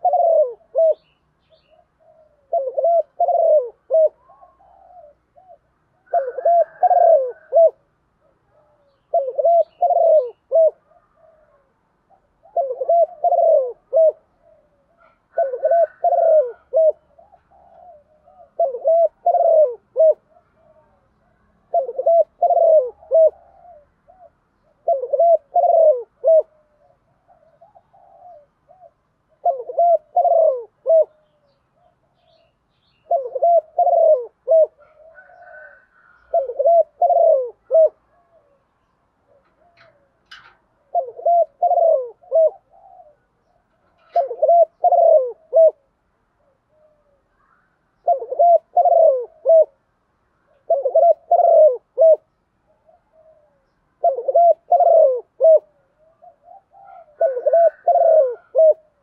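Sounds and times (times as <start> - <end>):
dove cooing: 0.0 - 59.0.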